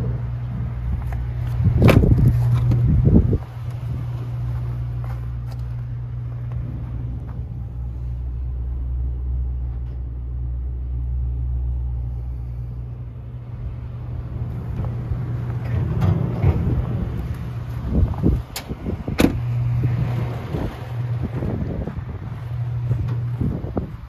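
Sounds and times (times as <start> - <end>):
truck engine idling: 0.0 - 24.0.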